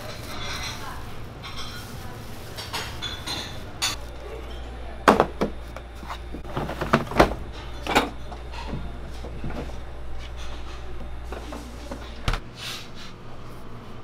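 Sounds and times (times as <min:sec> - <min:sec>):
low steady hum: 0:00.0 - 0:14.0
plastic crates clattering: 0:05.0 - 0:09.8.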